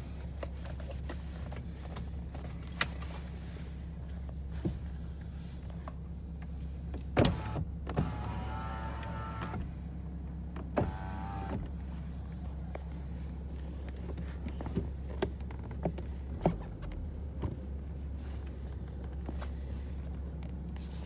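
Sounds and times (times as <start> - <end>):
car engine hum: 0.0 - 21.0
electric motor whining: 7.3 - 9.7, 10.8 - 11.7.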